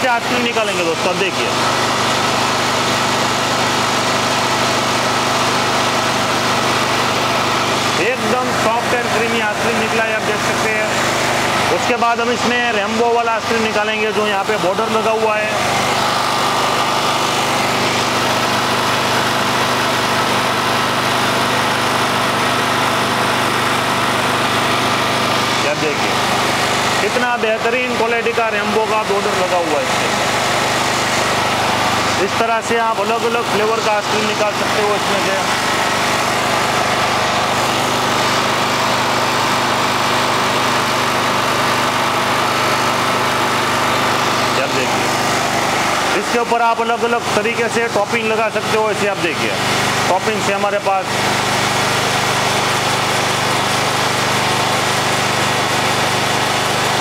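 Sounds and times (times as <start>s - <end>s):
generator engine hum: 0.0s - 57.0s.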